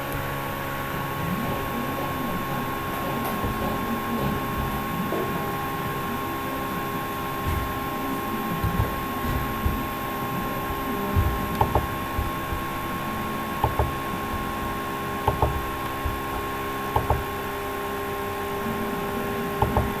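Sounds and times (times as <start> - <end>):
steady electrical hum: 0.0 - 20.0
computer mouse clicks: 11.2 - 12.6, 13.6 - 14.0, 15.3 - 17.2.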